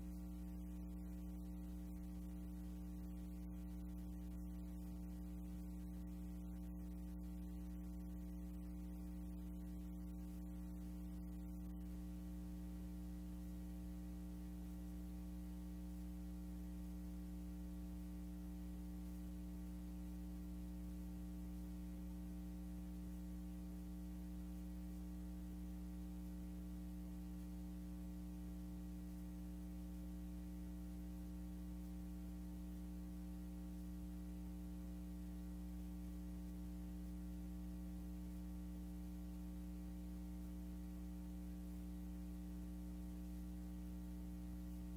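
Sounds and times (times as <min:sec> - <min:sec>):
electrical mains hum: 0:00.0 - 0:44.9
faint hiss: 0:00.0 - 0:44.9.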